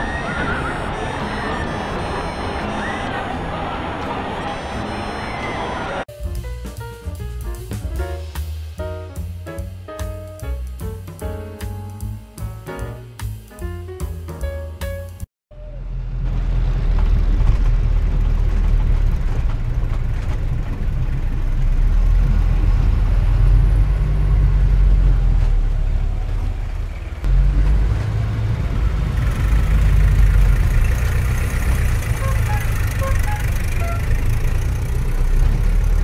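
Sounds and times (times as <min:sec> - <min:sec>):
traffic rumble: 0:15.5 - 0:36.0.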